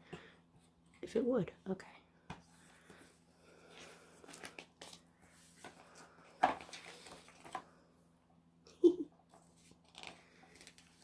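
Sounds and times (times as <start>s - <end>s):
book handling rustling and taps: 5.6s - 7.7s.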